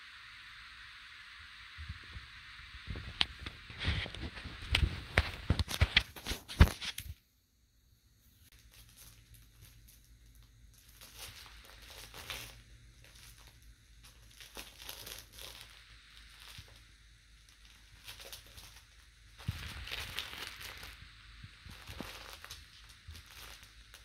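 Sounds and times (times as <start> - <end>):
fabric toy rustling and crinkling: 8.4 - 24.0.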